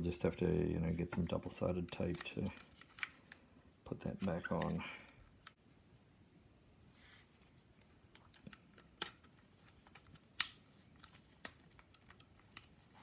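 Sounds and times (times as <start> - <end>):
plastic clicks and snaps: 8.1 - 12.7.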